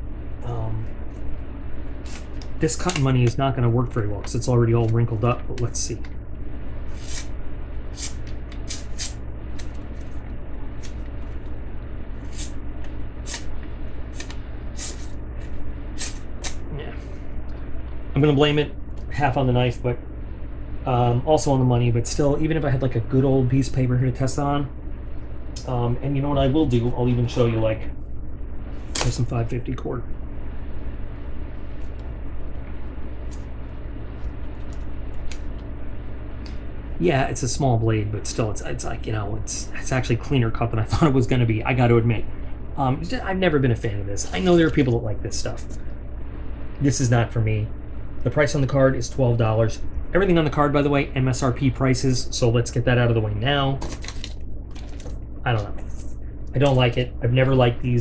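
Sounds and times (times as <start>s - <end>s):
low background hum: 0.0s - 58.0s
knife cutting cord: 7.0s - 7.3s.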